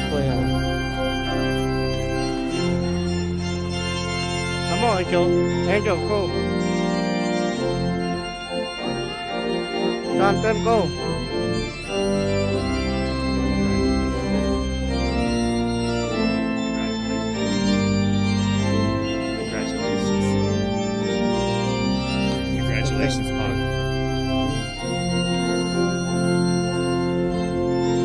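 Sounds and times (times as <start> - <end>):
person speaking: 0.0 - 1.4, 4.7 - 6.6, 10.0 - 11.8, 19.3 - 20.6, 22.5 - 24.8
organ playing chords: 0.0 - 28.0.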